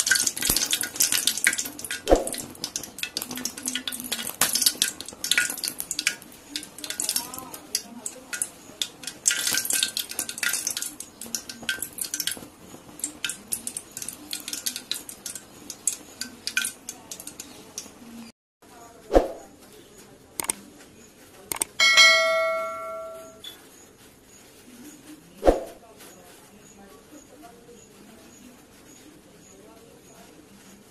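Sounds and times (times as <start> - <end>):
fuel fire crackling and popping: 0.0 - 18.3
ringing bell chime: 21.8 - 23.4.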